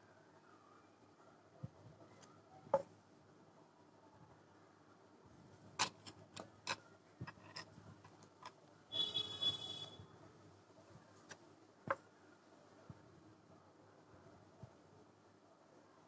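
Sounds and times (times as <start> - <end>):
thread rasping through fabric: 5.7 - 9.9.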